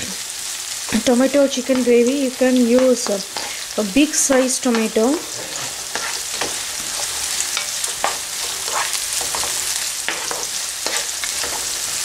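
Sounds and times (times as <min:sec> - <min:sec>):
onions sizzling in oil: 0:00.0 - 0:12.0
utensil stirring and scraping: 0:03.0 - 0:12.0.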